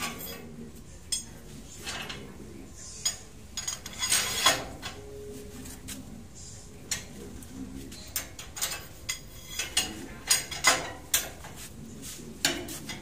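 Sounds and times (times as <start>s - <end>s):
steel rebar clinking and scraping: 3.0s - 5.0s, 7.9s - 11.5s.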